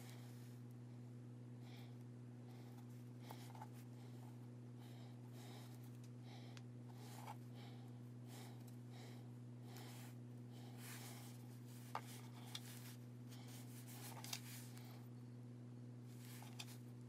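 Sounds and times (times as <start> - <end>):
low electrical hum: 0.0 - 17.0
hands handling craft pieces: 11.0 - 14.9.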